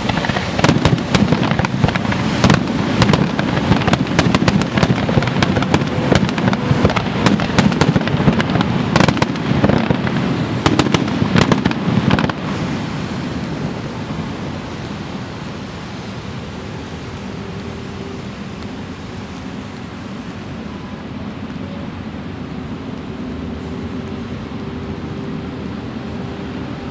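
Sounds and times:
fireworks crackling and banging: 0.0 - 21.6
steady rumble of noise: 0.0 - 26.9.

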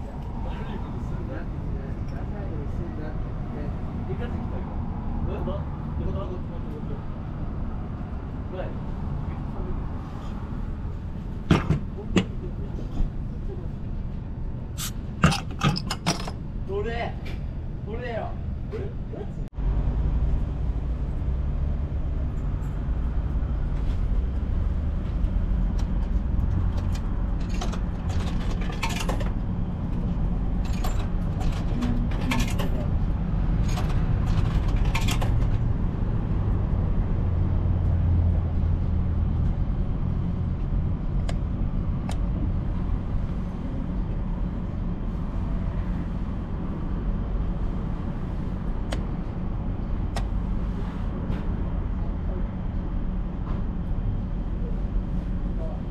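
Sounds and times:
steady low rumble: 0.0 - 55.9.

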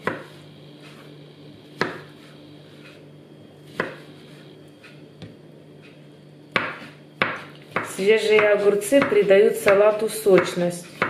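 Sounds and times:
knife cutting cucumber: 8.9 - 11.0.

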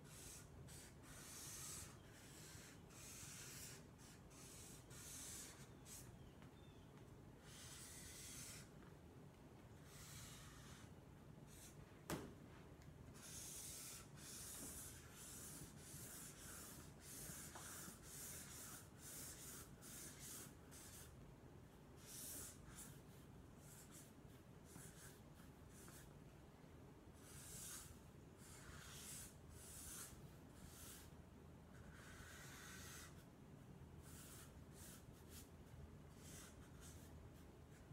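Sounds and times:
marker swishing on paper: 0.1 - 6.1, 7.4 - 8.7, 9.8 - 10.9, 13.1 - 21.1, 27.2 - 31.1.

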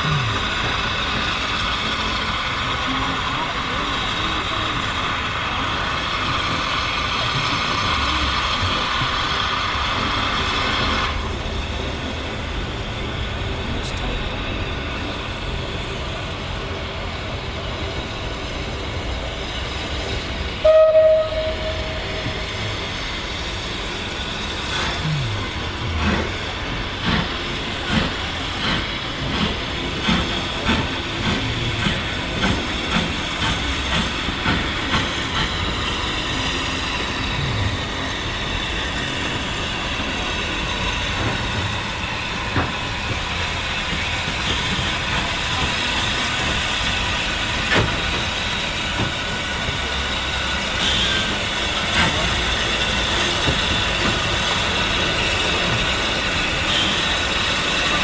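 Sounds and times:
continuous steam hiss: 0.0 - 58.0
steam locomotive exhaust beats: 0.0 - 58.0
wheels clicking on rail joints: 23.8 - 58.0.

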